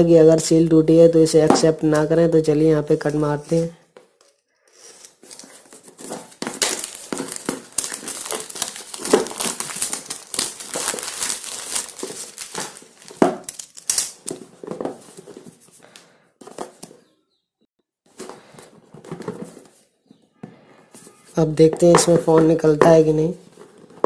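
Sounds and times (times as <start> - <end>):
plastic shrink-wrap crinkling: 4.6 - 16.0.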